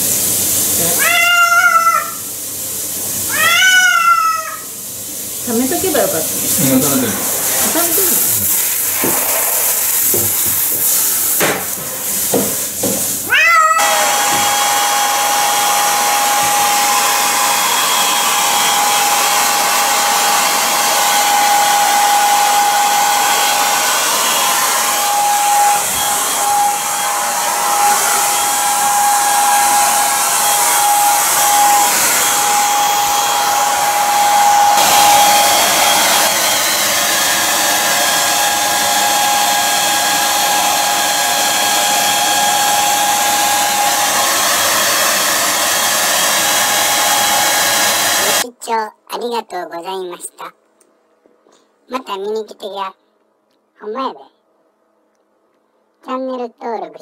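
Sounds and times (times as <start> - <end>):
shower spray hissing: 0.0 - 17.8, 18.4 - 40.8, 41.6 - 48.4
hair dryer whining: 0.0 - 48.4
cat meowing: 0.9 - 2.3, 3.3 - 4.7, 13.3 - 14.0.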